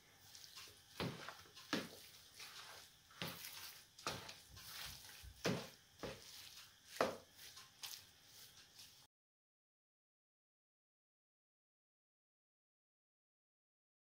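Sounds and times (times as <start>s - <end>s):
wet squishing of kneading: 0.0s - 9.1s.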